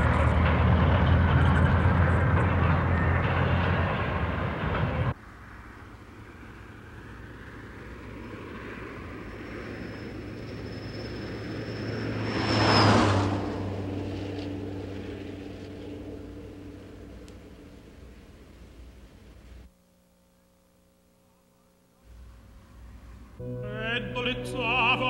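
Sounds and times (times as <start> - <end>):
vehicle passing: 0.0 - 18.6
thin high whine: 5.2 - 23.8.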